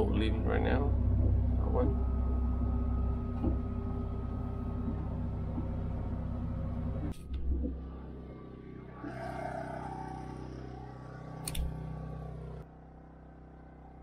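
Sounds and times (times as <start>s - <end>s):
portable generator humming: 0.0s - 14.0s
sharp click: 11.4s - 11.7s.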